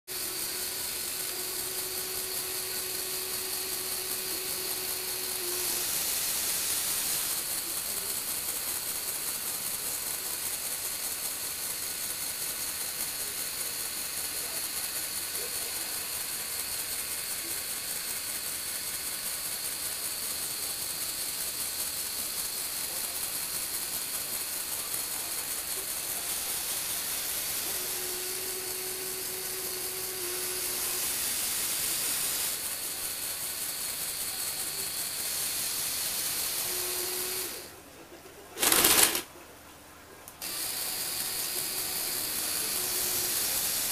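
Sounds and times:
electric motors and gears whirring: 0.1s - 37.8s, 38.6s - 39.3s, 40.3s - 43.9s
steady low hum: 0.1s - 43.9s.

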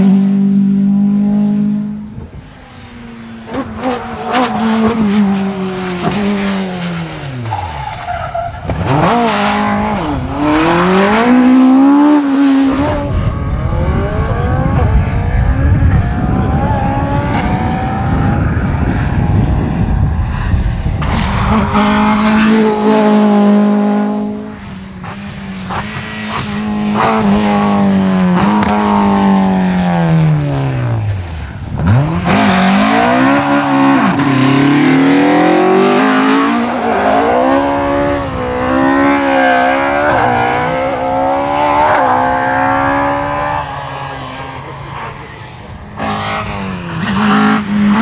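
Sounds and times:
rally car passing at full throttle: 0.0s - 48.0s
rally car engine through gear changes: 21.0s - 31.1s.

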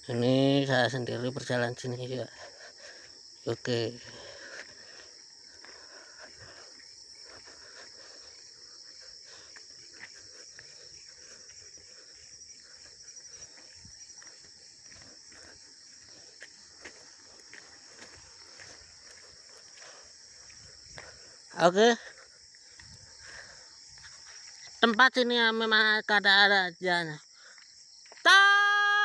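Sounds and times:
footsteps on dirt path: 0.0s - 25.2s, 27.3s - 29.0s
crickets chirping: 0.0s - 29.0s.

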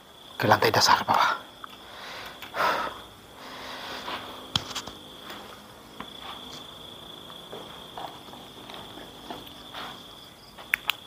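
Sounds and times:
crickets chirring: 0.0s - 11.0s
breathy sniff: 1.9s - 4.4s.

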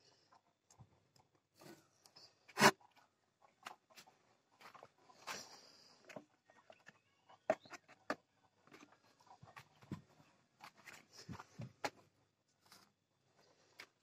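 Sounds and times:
handling knocks and rustles: 2.9s - 13.0s.

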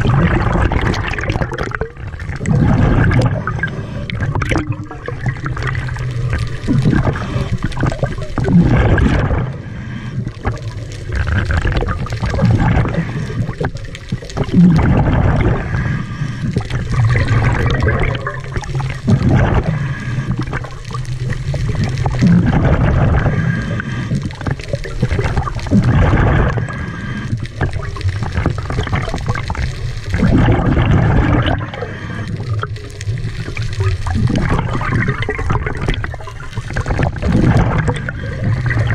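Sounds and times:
exhaled bubbles gushing: 0.0s - 38.9s
regulator inhale hiss: 23.3s - 24.4s, 26.6s - 27.6s, 31.7s - 32.6s.

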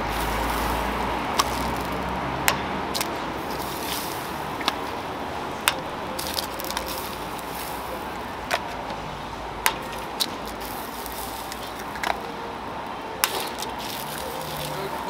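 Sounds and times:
eggshells cracking against metal: 1.3s - 5.0s.

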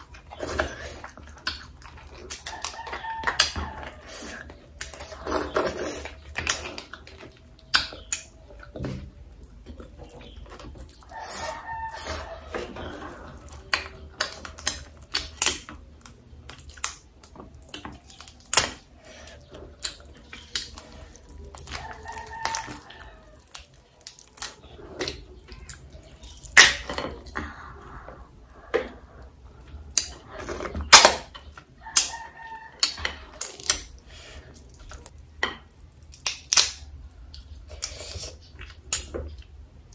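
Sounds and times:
wet chewing: 0.0s - 39.9s
rooster crowing: 2.5s - 4.3s, 11.0s - 13.1s, 21.7s - 23.6s, 31.8s - 33.4s
crab shell cracking: 35.8s - 37.5s.

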